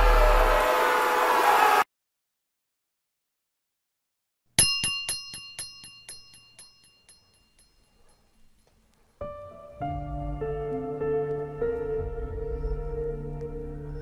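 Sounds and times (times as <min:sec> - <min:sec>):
high bell-like chime: 0:04.6 - 0:08.5.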